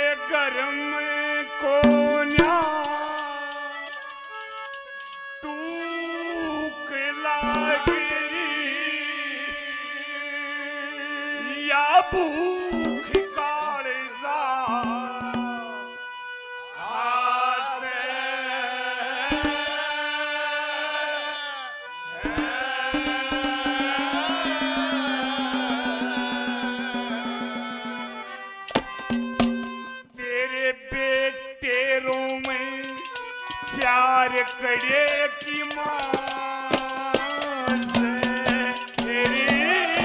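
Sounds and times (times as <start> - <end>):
man singing long held notes: 0.0 - 4.1, 5.4 - 16.0, 16.8 - 28.5, 30.2 - 40.0
accompanying instrument tones: 1.7 - 8.6, 12.7 - 13.6, 14.5 - 16.9, 19.2 - 20.0, 22.1 - 30.2, 30.9 - 40.0
drum strokes: 1.8 - 5.5, 7.4 - 8.3, 12.7 - 13.5, 14.7 - 15.8, 19.3 - 19.8, 22.2 - 30.0, 31.8 - 40.0.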